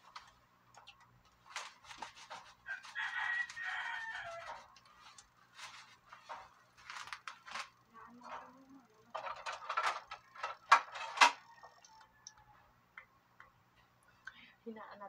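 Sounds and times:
plastic packet crinkling: 0.0s - 11.4s
dishes clattering: 9.1s - 11.6s.

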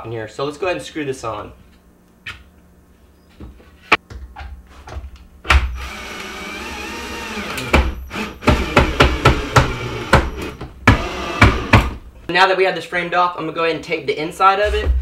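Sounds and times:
cordless drill driving screws: 5.8s - 12.0s.

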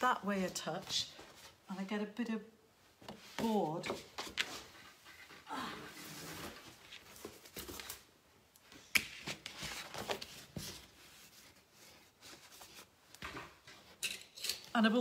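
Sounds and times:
paper rustling: 9.1s - 13.0s.

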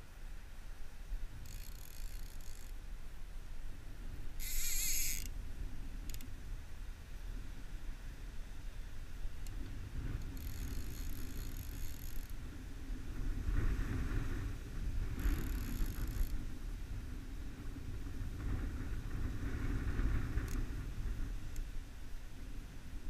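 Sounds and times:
wind rumble on microphone: 0.0s - 23.0s
fishing reel drag buzzing: 1.3s - 2.8s, 4.4s - 5.4s, 6.0s - 6.3s, 10.2s - 12.4s, 15.1s - 16.5s.

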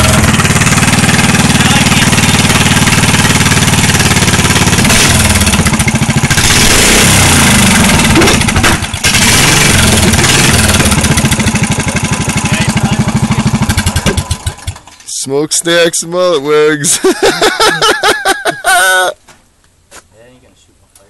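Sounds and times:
small engine revving and idling: 0.0s - 14.9s.

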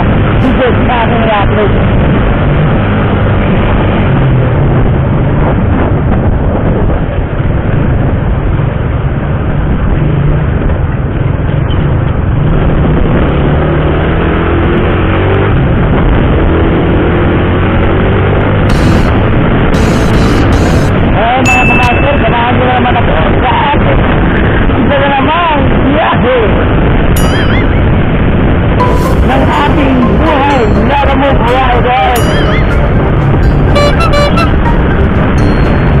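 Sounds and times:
wind and road noise: 0.0s - 36.0s
motorcycle engine running: 17.8s - 22.2s.

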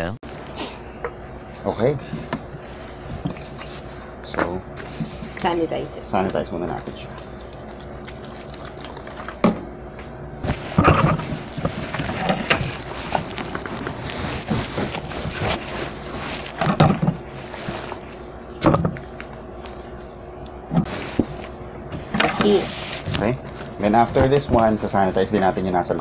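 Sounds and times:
plastic wrapping rustling: 10.4s - 18.4s.

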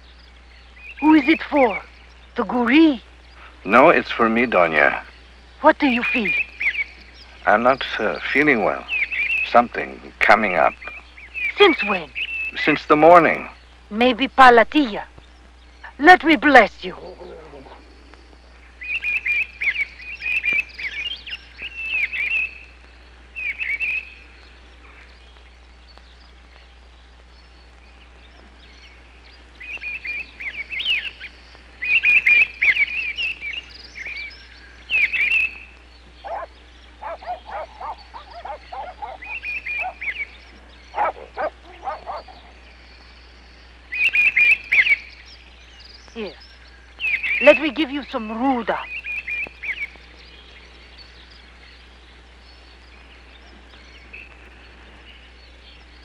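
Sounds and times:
rapid high chirping animal calls: 29.7s - 43.1s, 47.0s - 50.1s.

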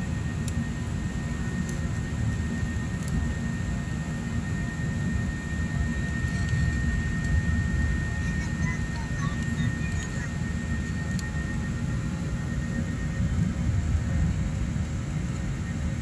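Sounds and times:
jet engine and airflow noise: 0.0s - 16.0s.

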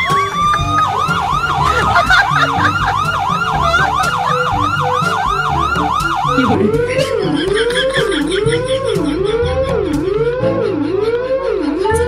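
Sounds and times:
electronic police siren: 0.0s - 7.2s, 9.6s - 12.0s
background music: 0.0s - 12.0s.

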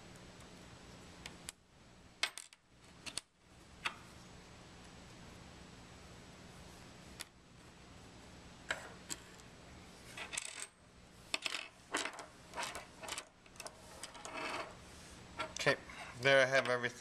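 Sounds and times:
metal parts clinking: 11.4s - 14.7s.

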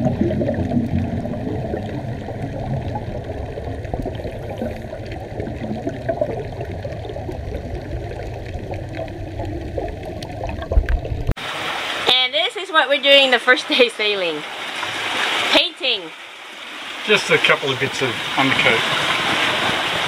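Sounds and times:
rushing sloshing water: 0.0s - 20.0s.

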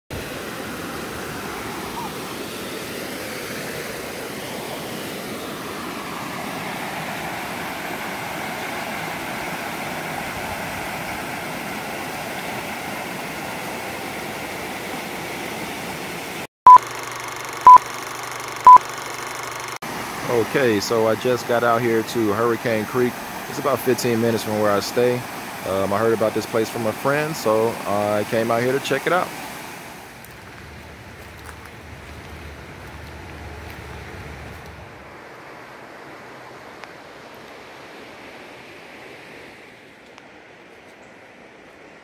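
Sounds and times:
creek water rushing over rocks: 0.1s - 16.5s, 19.9s - 39.5s
countdown beeps: 16.7s - 17.9s, 18.6s - 19.4s.

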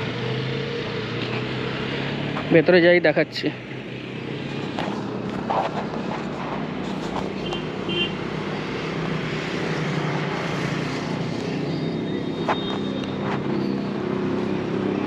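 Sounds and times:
road noise: 0.0s - 15.0s
vehicle engine running: 0.0s - 15.0s.

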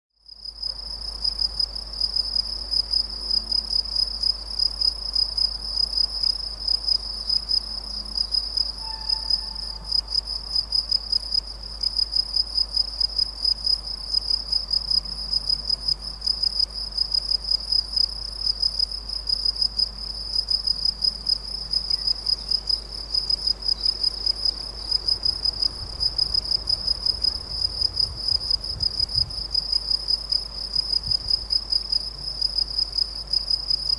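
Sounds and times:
insect trilling: 8.2s - 10.2s.

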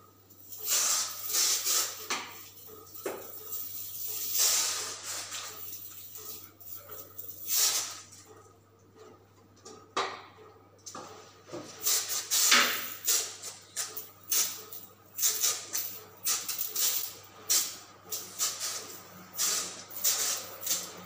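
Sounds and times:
spray wand hissing: 0.5s - 2.2s, 4.0s - 6.4s, 7.4s - 8.0s, 11.8s - 13.5s, 15.2s - 21.0s.

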